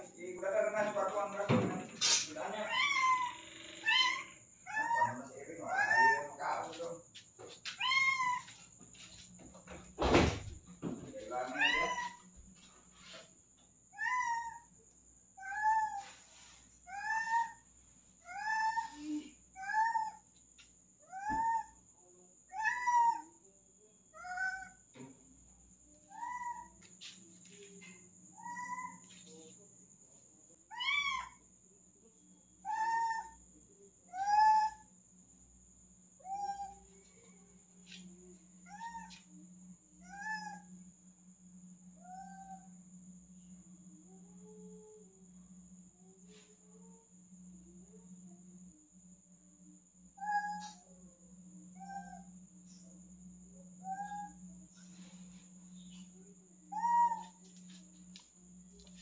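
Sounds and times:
cat meowing: 0:02.6 - 0:06.3, 0:07.8 - 0:08.5, 0:11.5 - 0:12.2, 0:22.5 - 0:23.2, 0:30.7 - 0:31.4.

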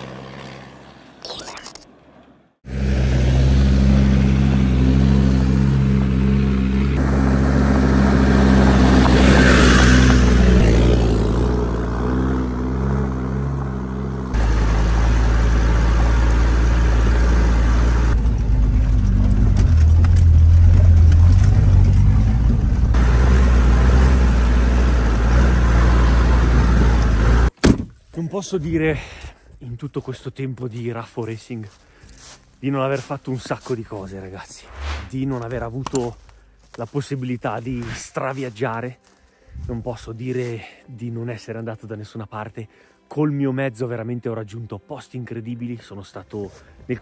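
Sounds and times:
diesel engine running: 0:02.7 - 0:27.5.

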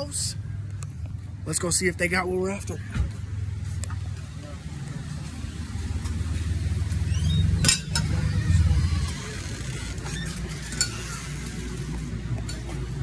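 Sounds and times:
rising squeak: 0:06.9 - 0:11.7.

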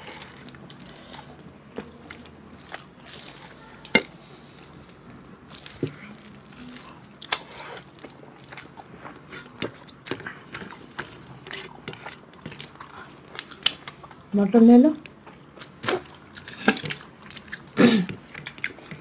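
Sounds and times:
fingers mixing food: 0:00.0 - 0:14.0, 0:15.0 - 0:19.0
wet chewing and lip smacks: 0:15.0 - 0:19.0.

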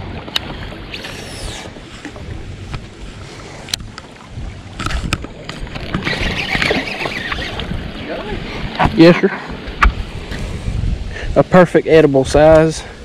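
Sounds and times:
fishing reel spool whirring: 0:00.0 - 0:08.7
wind buffeting microphone: 0:00.0 - 0:13.0.

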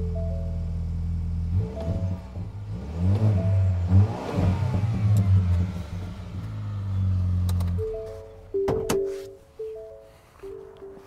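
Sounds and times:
pickup truck engine revving: 0:00.8 - 0:07.8.

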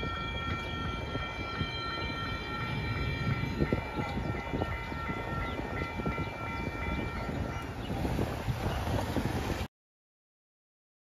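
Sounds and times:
railroad crossing bell ringing: 0:00.0 - 0:08.8.

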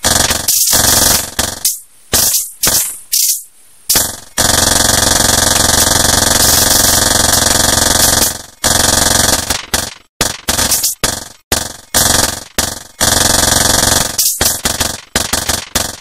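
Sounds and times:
buzzing drone of electronic interference: 0:00.0 - 0:02.8, 0:03.9 - 0:09.6
hiss: 0:00.5 - 0:04.0.

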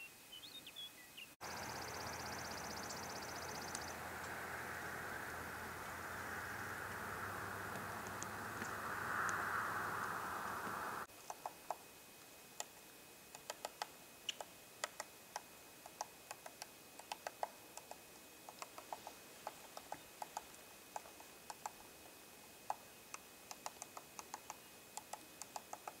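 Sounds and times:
woodpecker tapping on bark: 0:01.4 - 0:04.4, 0:06.8 - 0:11.8, 0:13.3 - 0:26.0.

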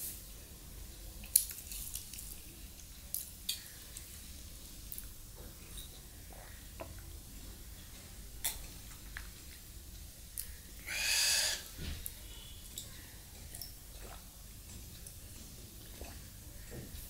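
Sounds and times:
breathy whistling exhale: 0:10.8 - 0:11.7.

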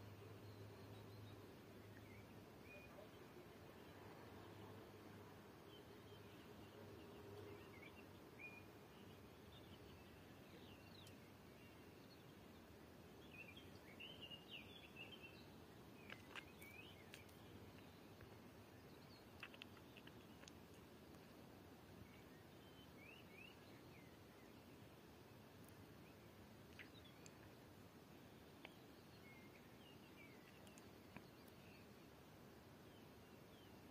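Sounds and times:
bird chirps: 0:00.0 - 0:03.9, 0:13.2 - 0:20.5, 0:22.0 - 0:24.8, 0:26.1 - 0:27.5, 0:28.5 - 0:32.0
steady low hiss: 0:00.0 - 0:33.9.

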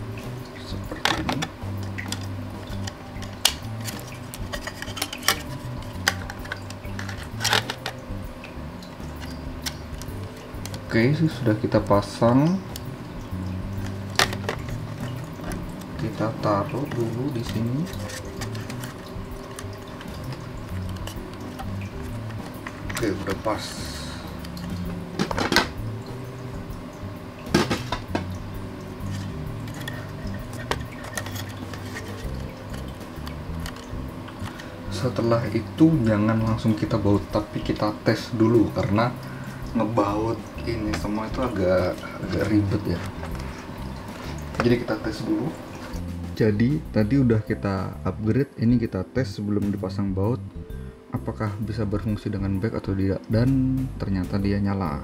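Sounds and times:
handling noise: 0:00.9 - 0:08.1, 0:13.7 - 0:25.9, 0:27.5 - 0:34.8.

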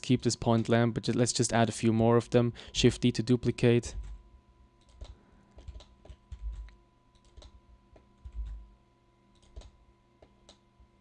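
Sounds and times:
faint steady high hum: 0:00.0 - 0:11.0
keyboard and mouse clicks: 0:04.8 - 0:08.6, 0:09.3 - 0:10.6.

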